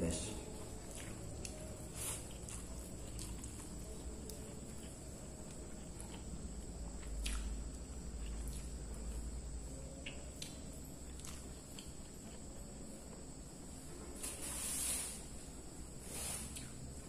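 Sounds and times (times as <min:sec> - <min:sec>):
faint high-pitched whine: 0:00.0 - 0:17.0
chewing: 0:00.6 - 0:09.2, 0:10.0 - 0:13.2, 0:16.4 - 0:16.9
soft mouth clicks and smacks: 0:07.0 - 0:07.6, 0:10.0 - 0:10.6, 0:16.5 - 0:16.9.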